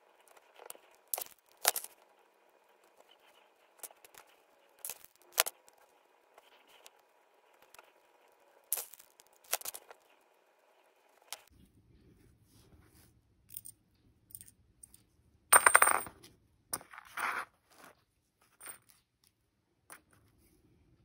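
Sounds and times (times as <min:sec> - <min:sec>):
metal pendant clattering on table: 0:14.3 - 0:16.1.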